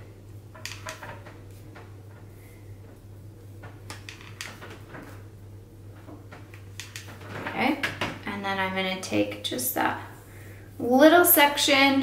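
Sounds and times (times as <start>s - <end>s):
steady low hum: 0.0s - 12.0s
flat iron clicks and rustles: 0.5s - 5.3s, 5.9s - 8.1s.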